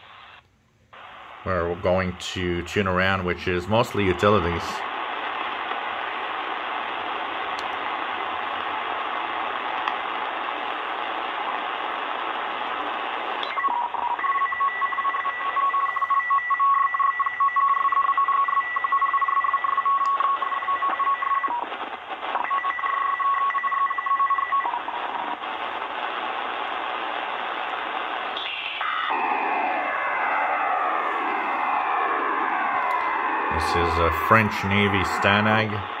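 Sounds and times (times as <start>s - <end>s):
radio band hiss: 0.0s - 0.4s, 1.0s - 13.7s, 20.2s - 22.4s, 24.6s - 36.0s.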